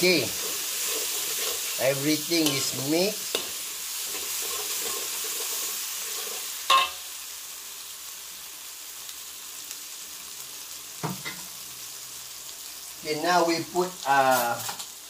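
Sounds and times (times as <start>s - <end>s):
spatula scraping a wok: 0.0s - 7.1s
paste sizzling in oil: 0.0s - 15.0s
utensil clanking on wok: 3.3s - 7.0s.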